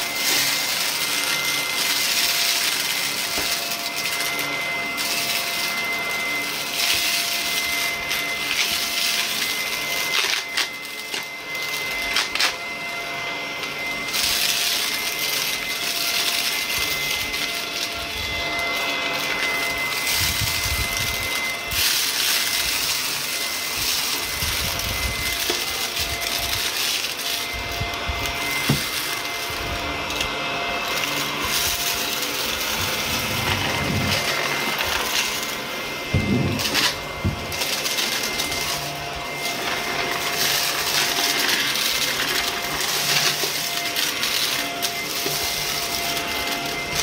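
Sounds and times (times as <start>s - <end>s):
vacuum cleaner running: 0.0s - 47.0s
crumbs crackling in vacuum: 13.7s - 47.0s.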